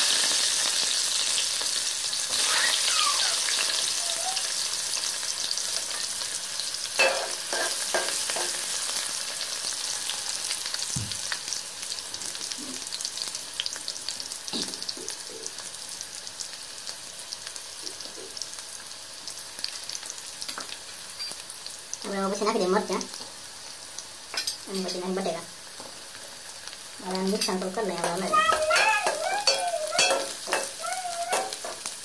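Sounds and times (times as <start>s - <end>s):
onion sizzling in hot oil: 0.0s - 32.0s.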